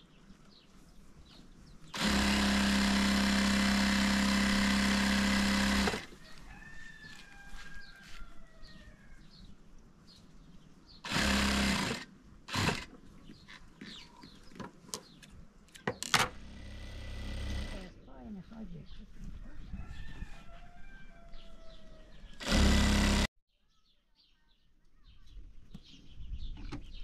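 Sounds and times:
electric sewing machine running: 0:02.0 - 0:06.1, 0:11.1 - 0:12.9, 0:16.4 - 0:17.9, 0:22.4 - 0:23.3.

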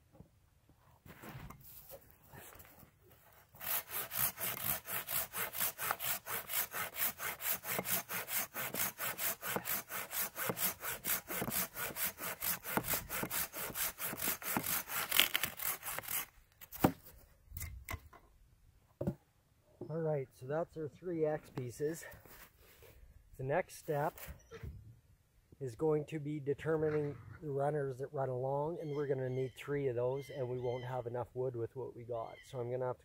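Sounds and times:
hand saw cutting wood: 0:03.2 - 0:17.0.

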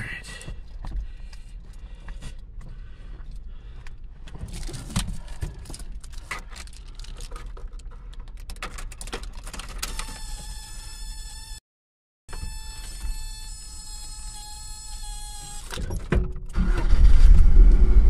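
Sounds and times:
irregular clicks and rattles: 0:03.8 - 0:10.4
steady low rumble: 0:16.9 - 0:18.0.

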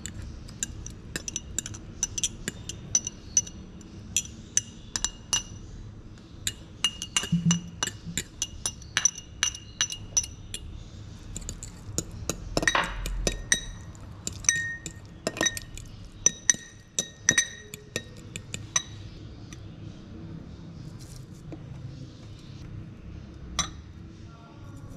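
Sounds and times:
fork clinking against glass bowl: 0:00.0 - 0:05.6, 0:06.5 - 0:10.7, 0:11.4 - 0:19.0.

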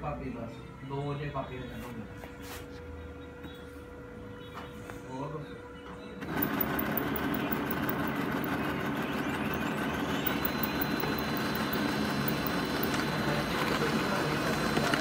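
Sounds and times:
faint printer whine: 0:00.0 - 0:15.0
laser printer printing: 0:06.0 - 0:15.0.

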